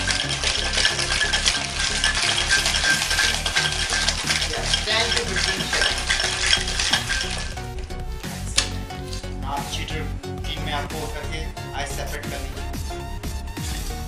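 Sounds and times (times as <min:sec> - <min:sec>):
ice rattling in cocktail shaker: 0:00.0 - 0:09.3.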